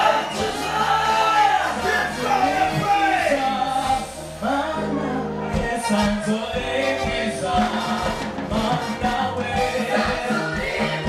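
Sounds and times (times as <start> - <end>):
band with bass line: 0.0 - 11.0
voices singing gospel: 0.0 - 11.0
drum beat: 5.6 - 11.0.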